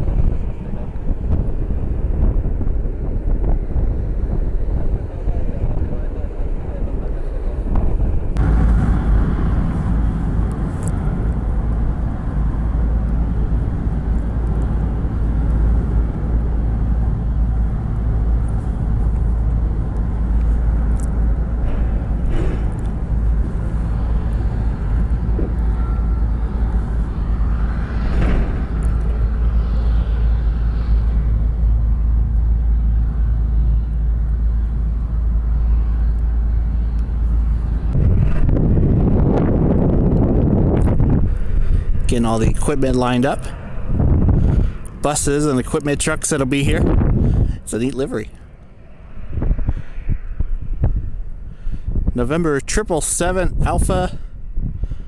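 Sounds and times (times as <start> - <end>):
wind buffeting microphone: 0.0 - 55.0
faint hum: 8.4 - 51.8.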